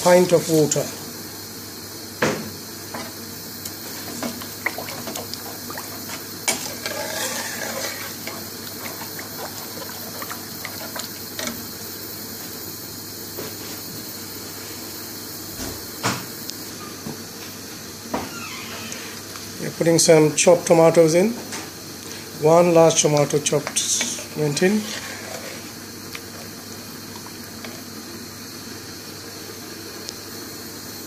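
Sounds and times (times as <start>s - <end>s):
dhal bubbling in a pan: 1.1s - 13.3s, 23.6s - 31.0s
spoon stirring sloshing liquid: 3.8s - 11.7s, 22.8s - 27.9s.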